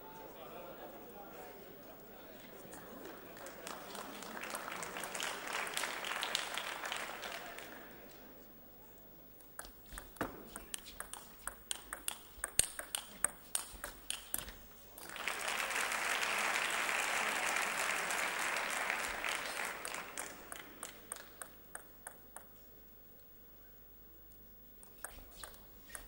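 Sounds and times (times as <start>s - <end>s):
crowd applauding: 2.7s - 8.2s, 15.0s - 21.5s
table tennis ball clicks: 9.6s - 14.6s, 20.5s - 22.5s.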